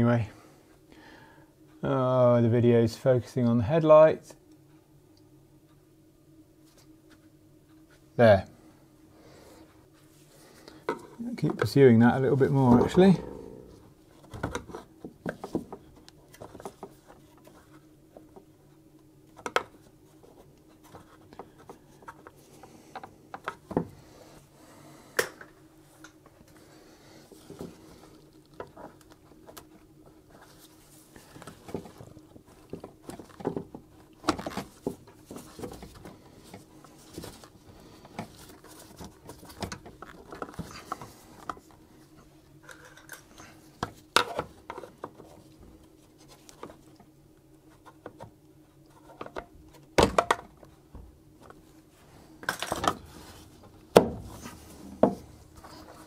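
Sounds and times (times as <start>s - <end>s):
faint steady hum: 0.0s - 56.0s.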